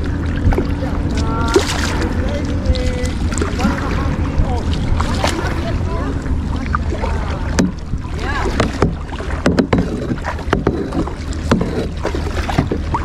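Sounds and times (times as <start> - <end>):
paddle strokes in water: 0.0 - 13.0
wind rumble on microphone: 0.0 - 13.0
sharp knocks: 7.6 - 7.8, 8.6 - 11.9.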